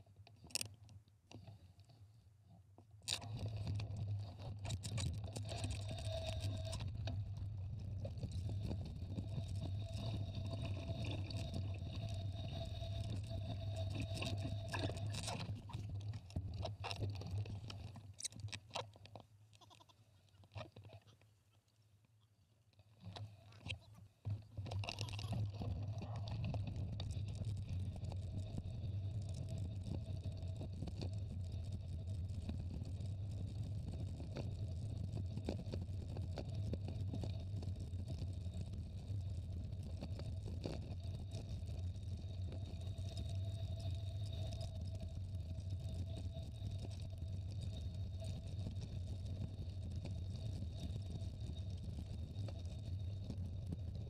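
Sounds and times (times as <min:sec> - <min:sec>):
bike tyres rolling on gravel: 0:03.2 - 0:18.6.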